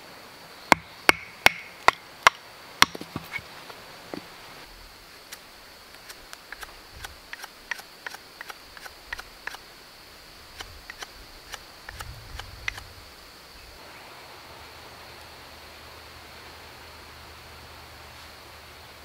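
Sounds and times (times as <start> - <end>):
knife whittling wood clicks: 5.3 - 9.6, 10.6 - 12.9.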